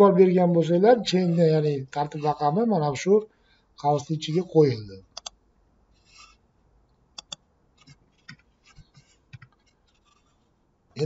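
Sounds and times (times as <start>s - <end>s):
faint computer mouse clicks: 7.2s - 8.4s.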